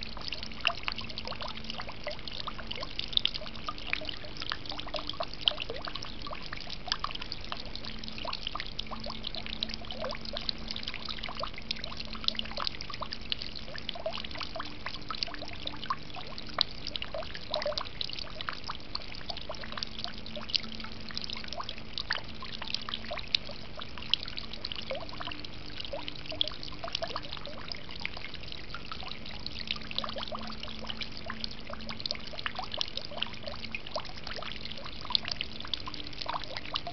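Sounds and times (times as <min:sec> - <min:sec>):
fountain water trickling and splashing: 0:00.0 - 0:36.9.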